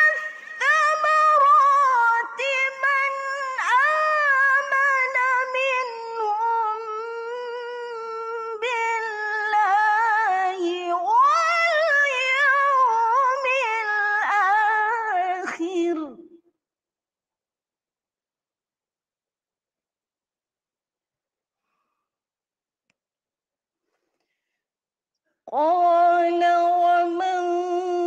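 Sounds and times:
woman reciting melodically: 0.0 - 16.4, 25.5 - 28.0.

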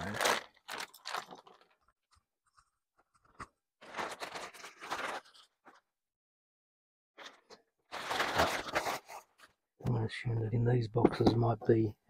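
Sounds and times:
plastic bag crinkling: 0.0 - 1.9, 3.8 - 5.8.

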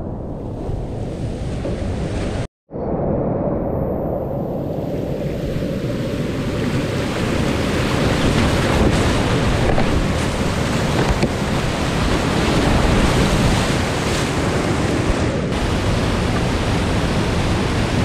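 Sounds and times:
whitewater rapids rushing: 6.2 - 18.0.

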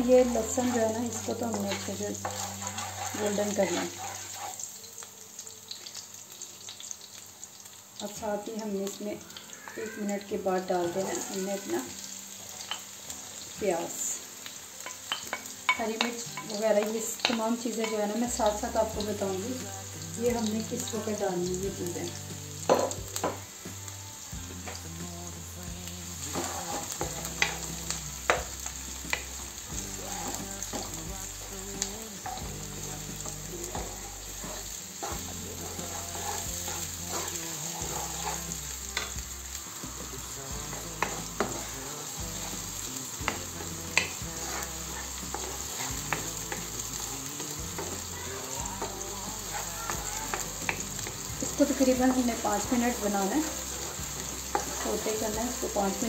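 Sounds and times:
onion sizzling in oil: 0.0 - 56.0
wooden spoon knocking on pan: 22.7 - 23.4.

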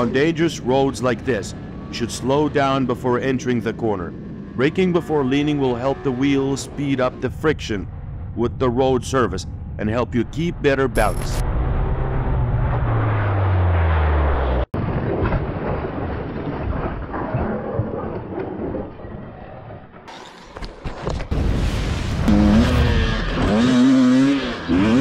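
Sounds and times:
vehicle engine revving: 11.0 - 14.7, 22.2 - 25.0
rushing road noise: 11.1 - 14.7.

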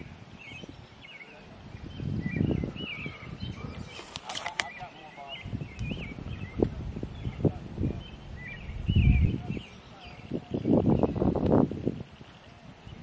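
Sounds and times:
small birds singing: 0.0 - 13.0
wind on microphone: 0.0 - 13.0.

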